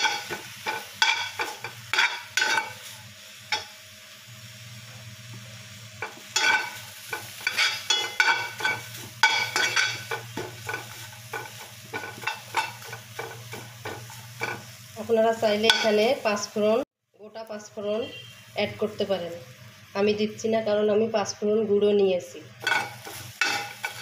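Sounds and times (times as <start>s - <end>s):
metal spoon scraping a pan: 0.0s - 2.9s, 6.0s - 14.7s, 22.6s - 24.0s.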